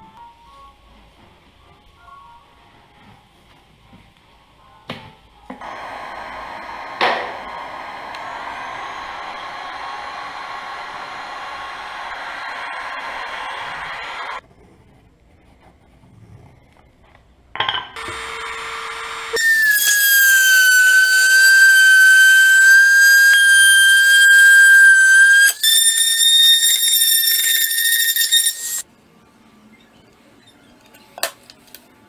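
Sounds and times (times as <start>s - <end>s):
heat gun blowing: 5.6s - 14.4s, 18.0s - 28.8s
rotary tool high-pitched whine: 5.6s - 14.4s, 18.0s - 28.8s.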